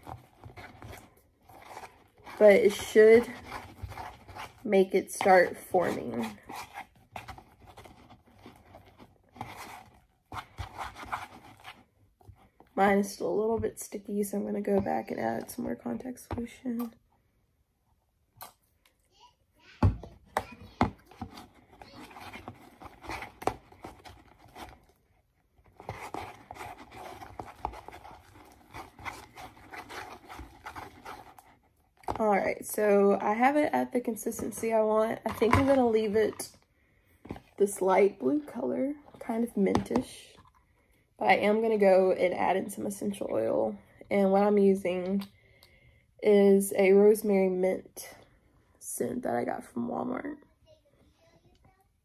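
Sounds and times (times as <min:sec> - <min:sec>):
slime stirred in plastic bowl: 0:00.0 - 0:16.6, 0:20.3 - 0:36.6.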